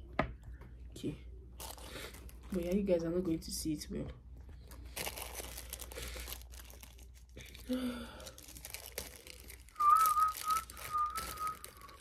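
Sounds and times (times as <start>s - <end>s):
packaging crinkling: 1.6s - 2.9s, 4.6s - 12.0s.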